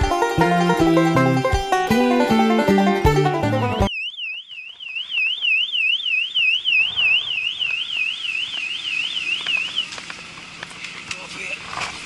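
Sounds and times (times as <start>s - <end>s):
electronic alarm tone warbling: 3.6s - 9.9s.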